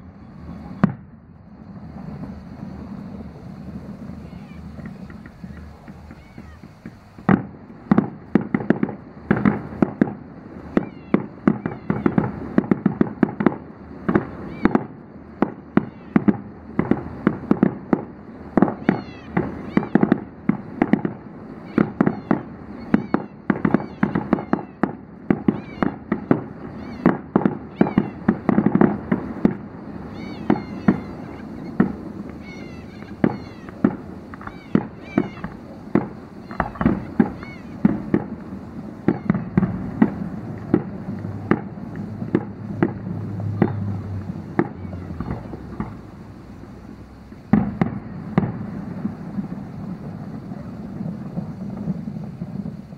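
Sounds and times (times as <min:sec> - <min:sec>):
distant fireworks bangs and crackles: 0:00.0 - 0:52.9.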